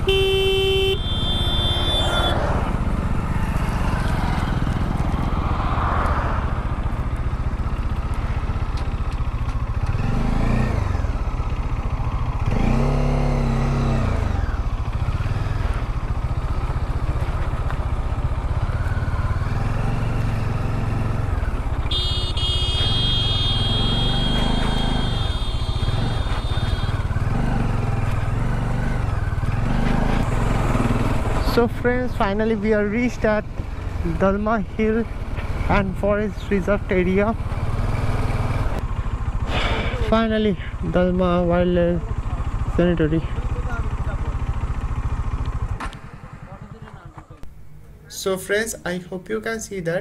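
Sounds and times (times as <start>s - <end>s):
motorcycle engine revving: 0.0s - 48.0s
road noise: 0.0s - 50.0s.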